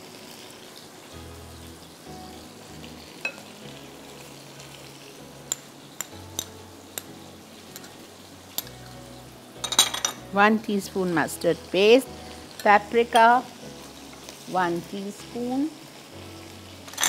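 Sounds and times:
meat sizzling in a pan: 0.0s - 17.0s
metal spoon clinking on plate: 9.6s - 10.2s.

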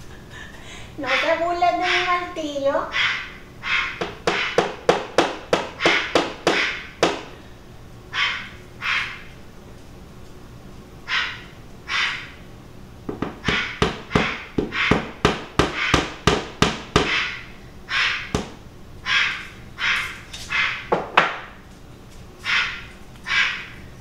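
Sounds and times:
parrot squawking: 1.0s - 4.8s, 5.6s - 7.3s, 8.1s - 9.4s, 11.0s - 12.4s, 13.4s - 16.2s, 17.0s - 18.4s, 19.0s - 21.0s, 22.4s - 23.9s
wooden mallet knocking on wall: 4.0s - 7.3s, 13.1s - 17.2s, 18.3s - 18.6s, 20.9s - 21.4s.

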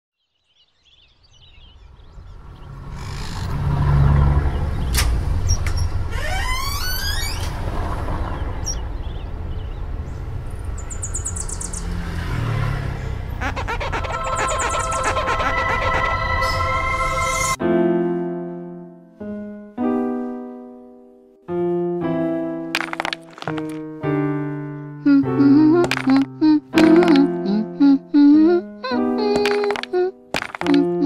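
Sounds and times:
low traffic rumble: 1.4s - 17.6s
bird chirps: 8.2s - 12.0s, 13.4s - 17.5s
music with keyboard tones: 13.6s - 31.0s
rising whistle-like glide: 14.0s - 17.6s.

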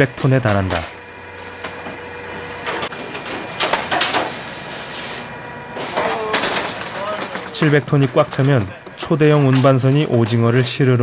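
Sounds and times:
machinery hum: 0.0s - 11.0s
metal trays scraping and clattering: 5.8s - 8.7s.

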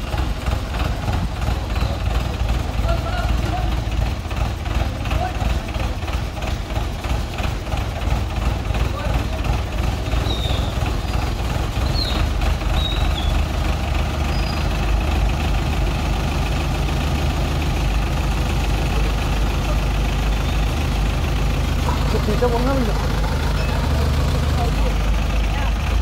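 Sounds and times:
crane diesel engine running: 0.0s - 26.0s.

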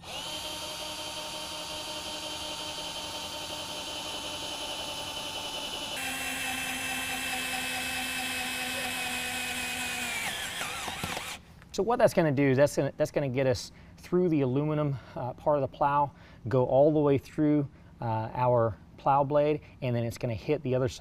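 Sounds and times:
cordless drill boring into metal: 0.0s - 11.4s.

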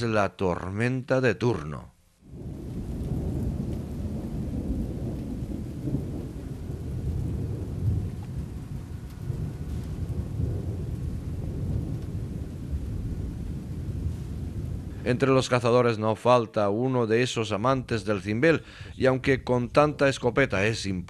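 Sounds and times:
thunder rumbling: 2.2s - 15.9s, 17.3s - 21.0s.

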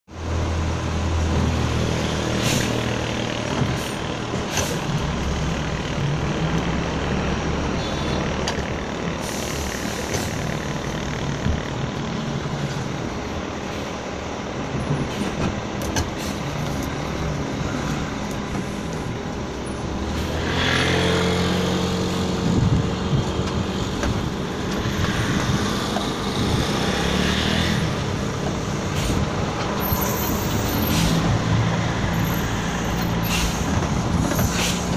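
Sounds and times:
diesel bus engine running: 0.1s - 34.9s
air brake hisses: 9.2s - 10.4s, 16.2s - 16.5s, 30.3s - 31.2s, 32.6s - 33.7s, 34.4s - 34.9s.

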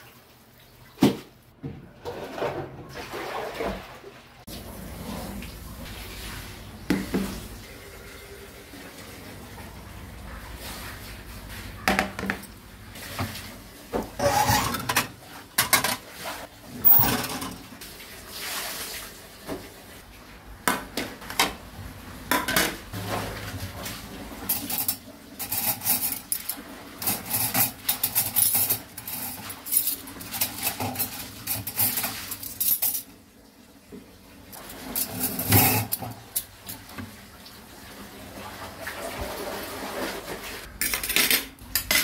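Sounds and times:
cutlery and dishes clinking: 40.8s - 42.0s.

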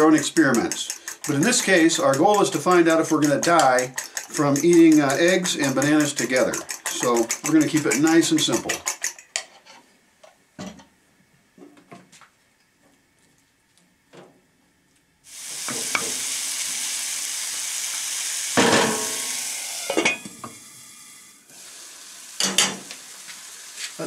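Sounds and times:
food sizzling in pan: 15.3s - 24.0s.

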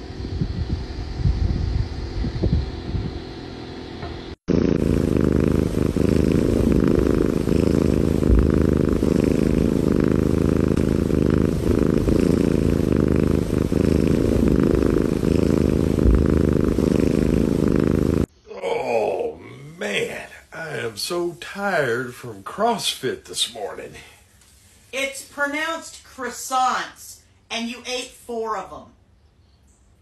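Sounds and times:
kitten purring: 4.4s - 18.3s.

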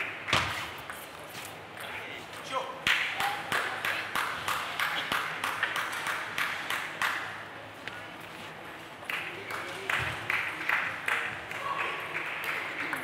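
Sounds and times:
spectators clapping in rhythm: 0.0s - 0.4s, 2.8s - 7.6s, 9.0s - 13.0s.

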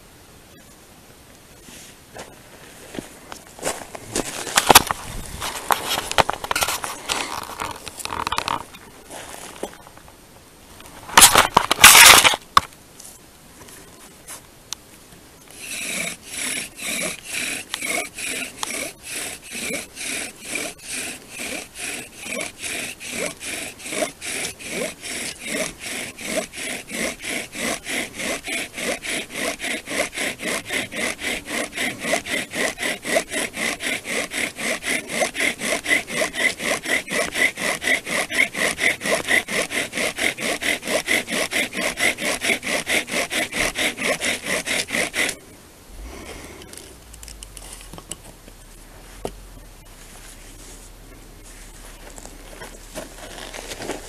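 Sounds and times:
rustling: 1.5s - 54.0s
loud scuffing: 2.2s - 7.6s
bow drill rasping and squeaking: 11.2s - 12.4s, 15.5s - 45.4s, 46.1s - 54.0s.

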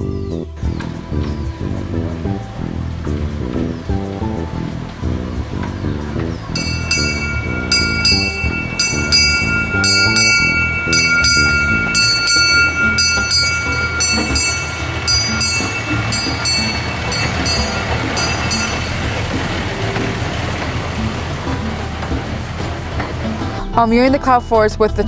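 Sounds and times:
locomotive bell ringing: 6.5s - 23.6s.

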